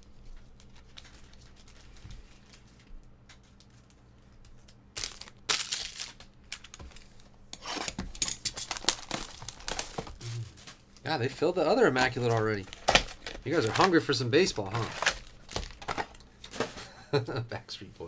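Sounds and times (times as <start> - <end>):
shrink-wrap tearing and crinkling: 0.4 - 4.0, 4.6 - 7.0, 7.6 - 10.8, 11.8 - 16.2.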